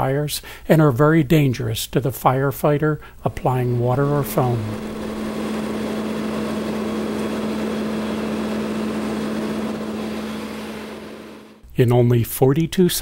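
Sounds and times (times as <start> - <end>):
engine droning: 3.3 - 11.6.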